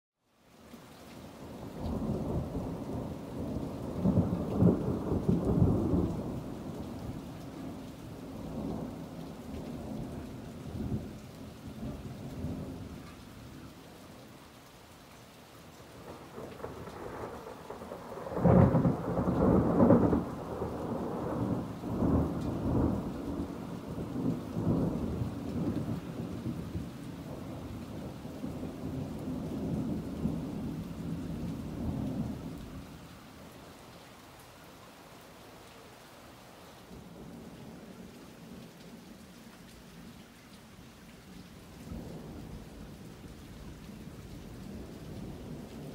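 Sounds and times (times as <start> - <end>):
steady rain: 0.2 - 45.9
thunder rumbling: 1.7 - 7.8, 16.0 - 32.8.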